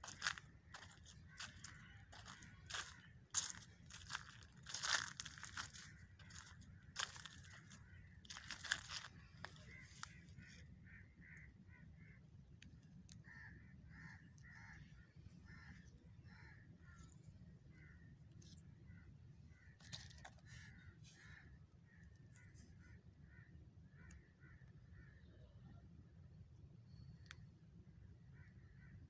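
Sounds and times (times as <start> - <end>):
footsteps crunching dry leaves: 0.0 - 10.2
bird calling: 0.0 - 12.2.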